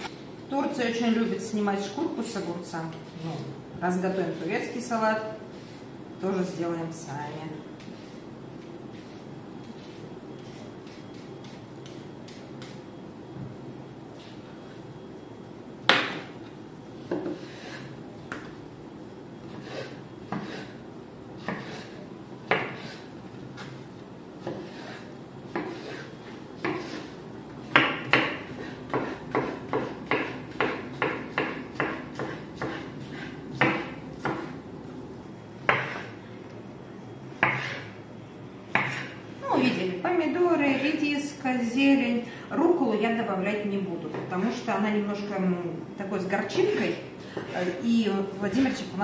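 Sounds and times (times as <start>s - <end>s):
knife chopping on wooden board: 21.4s - 21.9s, 22.5s - 23.0s, 24.4s - 26.0s, 26.6s - 27.1s, 27.7s - 34.6s, 35.7s - 36.1s, 37.4s - 37.9s, 38.7s - 39.1s.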